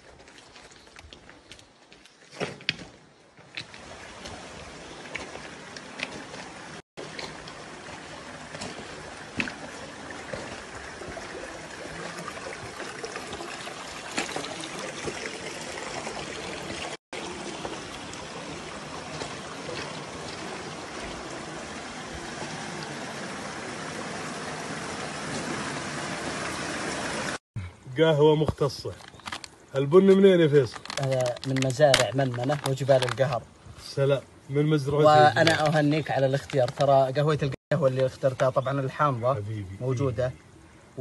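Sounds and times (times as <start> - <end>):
stream trickling over stones: 3.4 - 27.4, 28.6 - 41.0.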